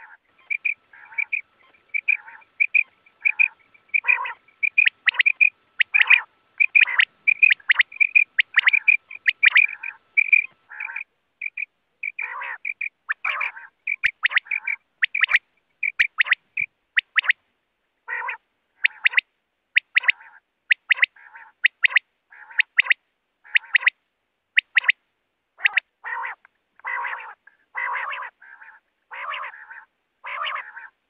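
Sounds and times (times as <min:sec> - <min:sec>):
quail calling: 0:00.0 - 0:17.4, 0:18.0 - 0:24.0, 0:24.6 - 0:25.0, 0:25.6 - 0:31.0.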